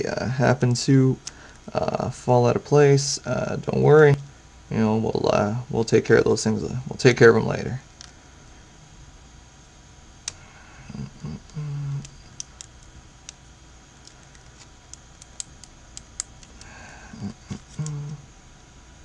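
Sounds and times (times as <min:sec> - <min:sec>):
man murmuring: 0:10.5 - 0:12.3, 0:16.6 - 0:18.2.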